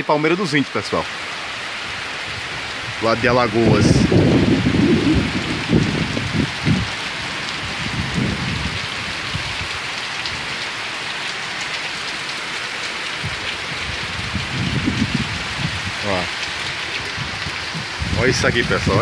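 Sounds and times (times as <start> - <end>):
heavy rain pattering: 0.2 - 19.0
low rumbles: 2.3 - 9.7.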